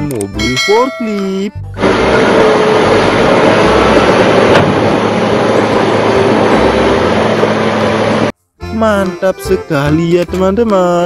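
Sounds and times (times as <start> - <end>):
wheel loader running: 1.7 - 8.4.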